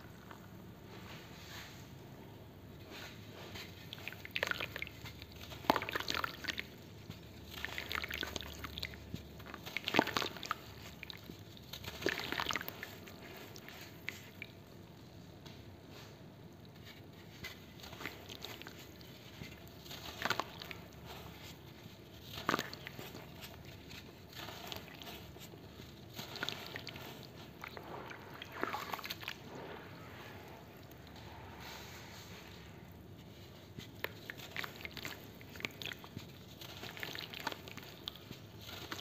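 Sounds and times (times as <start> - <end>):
wet crumbs splashing into water: 3.6 - 15.0, 16.7 - 29.5, 33.6 - 39.0.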